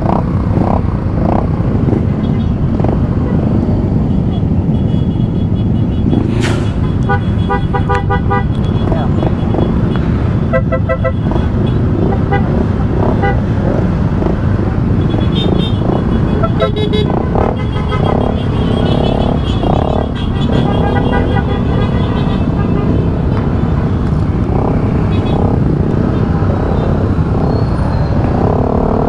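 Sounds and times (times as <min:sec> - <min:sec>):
motorcycle engines rumbling: 0:00.0 - 0:29.0
voices: 0:08.6 - 0:09.8.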